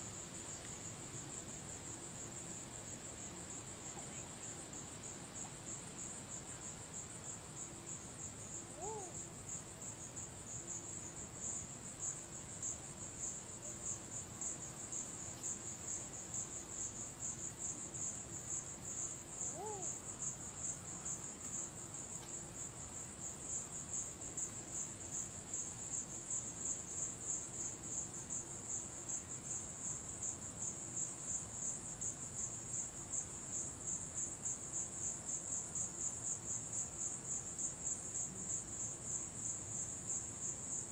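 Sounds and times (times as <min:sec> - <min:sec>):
crickets chirping: 0:00.0 - 0:40.9
faint lower calls: 0:19.4 - 0:20.0.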